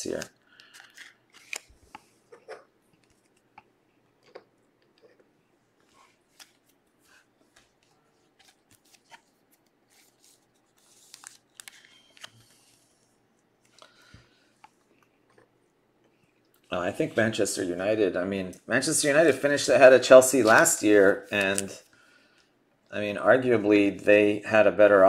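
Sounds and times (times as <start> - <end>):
cards rustling: 0.0 - 14.1, 20.1 - 21.9.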